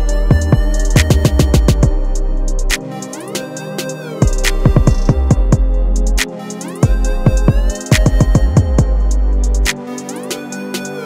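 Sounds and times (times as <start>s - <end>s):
heavy kick-drum beat: 0.0s - 2.8s, 4.2s - 9.8s
electronic backing music: 0.0s - 11.0s
rising synth sweeps: 0.0s - 11.0s.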